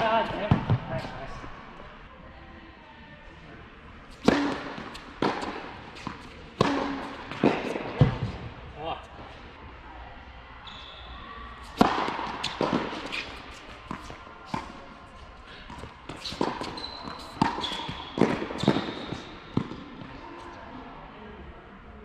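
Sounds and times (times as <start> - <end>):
sneaker squeaks: 4.1 - 8.4, 10.6 - 14.8, 15.5 - 19.8
ball bouncing on court: 4.2 - 8.4, 15.7 - 19.9
racket striking tennis ball: 4.2 - 8.5, 11.6 - 14.8, 15.6 - 19.9.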